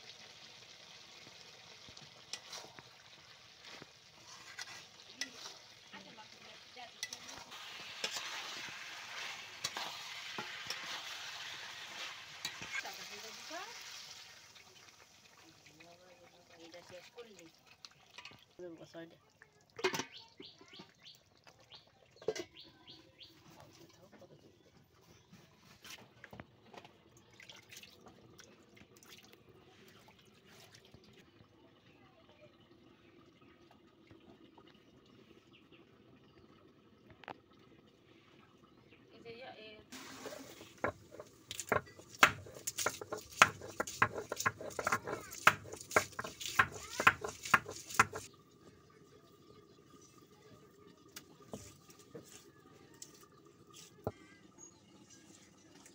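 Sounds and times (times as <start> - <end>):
stone pestle knocking on stone: 40.8 - 48.3.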